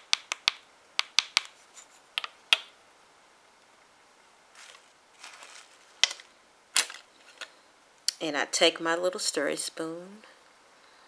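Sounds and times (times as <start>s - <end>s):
plastic spoon tapping plastic jar: 0.0s - 1.5s
faint soft rustle: 1.6s - 2.2s, 4.5s - 7.7s.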